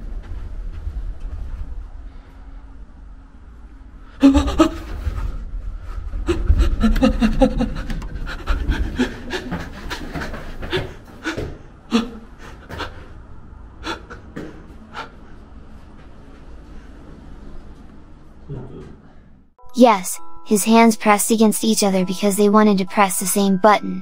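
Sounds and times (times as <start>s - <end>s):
person panting and gasping: 6.3s - 13.2s, 13.8s - 15.3s.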